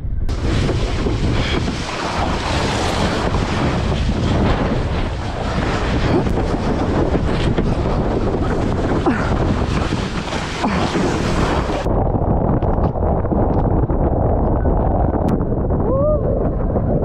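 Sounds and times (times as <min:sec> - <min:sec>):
wind buffeting microphone: 0:00.0 - 0:17.0
water rushing past board: 0:00.3 - 0:11.9.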